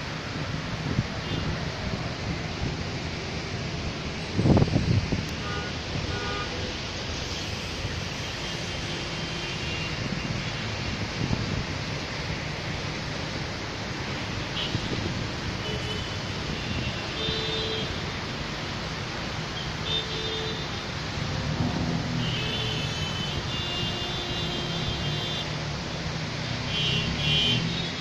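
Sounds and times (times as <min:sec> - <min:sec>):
rain and tyres on wet road: 0:00.0 - 0:28.0
vehicle horns honking: 0:05.4 - 0:06.5, 0:22.2 - 0:25.5.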